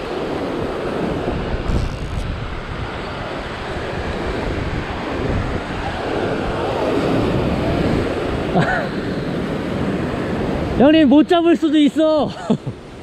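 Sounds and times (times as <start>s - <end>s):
wind on microphone: 0.0s - 11.3s
ocean surf breaking over rocks: 0.0s - 13.0s.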